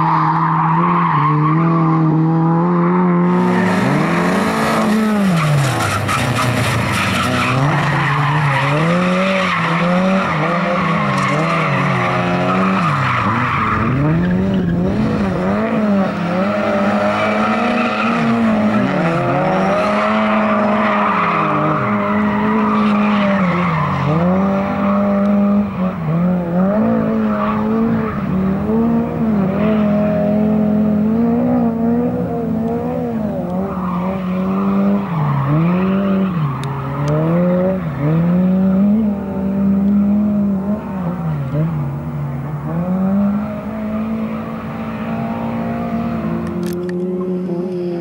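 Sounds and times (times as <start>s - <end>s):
car engine at high revs: 0.0s - 48.0s
tyres squealing on concrete: 4.8s - 14.8s.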